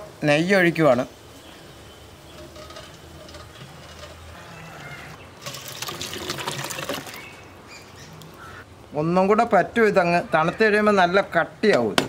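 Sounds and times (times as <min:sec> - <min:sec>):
thin stream of liquid pouring: 0:05.4 - 0:07.4.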